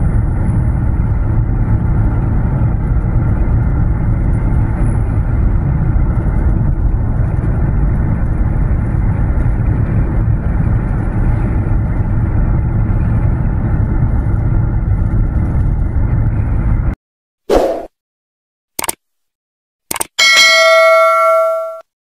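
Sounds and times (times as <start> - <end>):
car road and wind noise: 0.0 - 17.0.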